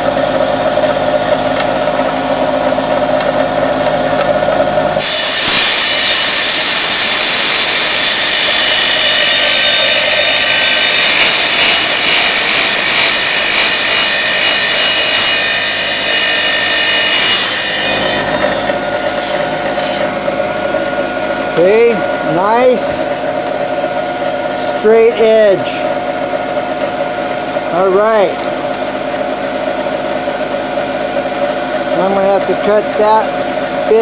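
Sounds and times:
tile saw motor whine: 0.0 - 34.0
saw blade grinding tile: 1.5 - 20.2.

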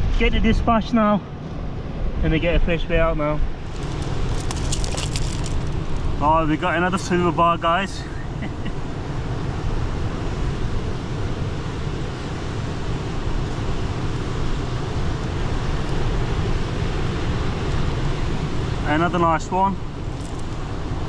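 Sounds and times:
wind gusting on microphone: 0.0 - 8.0.

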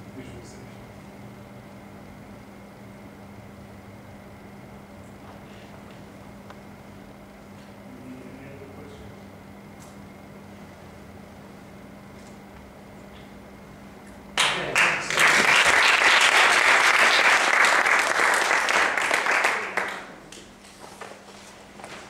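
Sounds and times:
audience applauding: 14.4 - 20.3.

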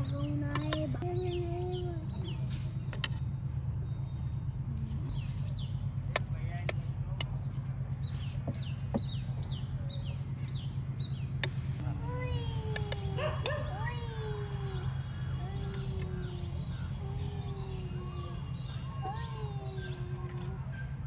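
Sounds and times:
birds chirping: 0.0 - 21.0
steady low hum: 0.0 - 21.0.

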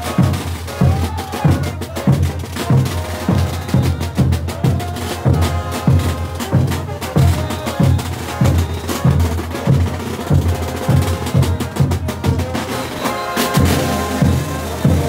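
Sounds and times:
bass drums beating: 0.0 - 12.6
brass holding notes: 0.0 - 15.0.

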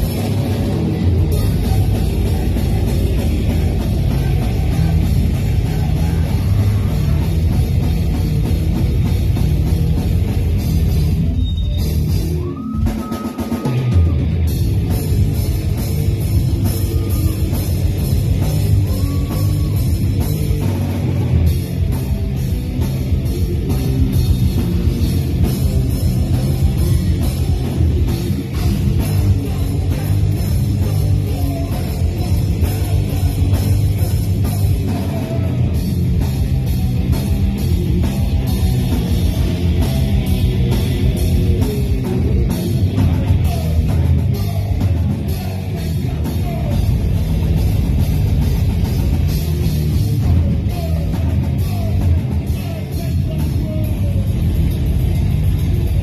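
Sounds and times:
rapid drum kit hits: 0.0 - 11.3
bass guitar: 0.0 - 56.0.

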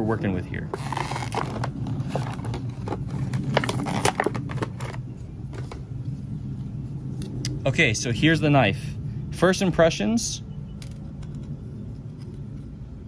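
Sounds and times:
steady low hum: 0.0 - 13.0
plastic packaging crinkling: 0.7 - 5.0.

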